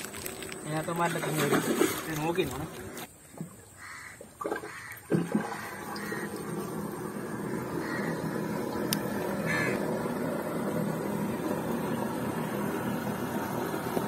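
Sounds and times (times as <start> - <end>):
crow cawing: 3.8 - 6.4, 7.6 - 8.4, 9.4 - 9.8
water rushing through channel: 4.4 - 14.0.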